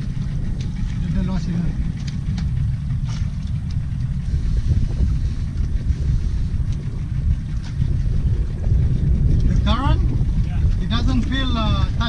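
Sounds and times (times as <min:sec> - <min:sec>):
boat rumble: 0:00.0 - 0:12.0.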